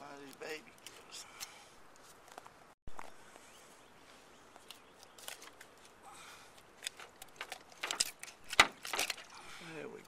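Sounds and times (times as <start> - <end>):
fish handled in hands: 4.6 - 9.7.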